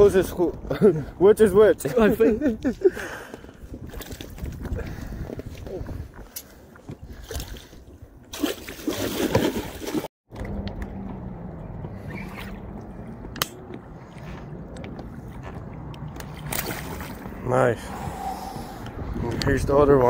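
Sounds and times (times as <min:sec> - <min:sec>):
water splashing: 0:07.2 - 0:10.1, 0:13.8 - 0:17.5.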